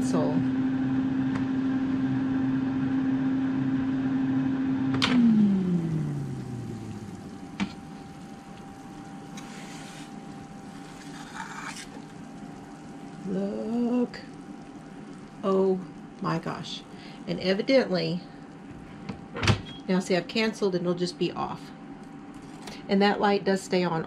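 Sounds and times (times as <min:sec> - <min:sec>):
air fryer fan humming: 0:00.0 - 0:24.0.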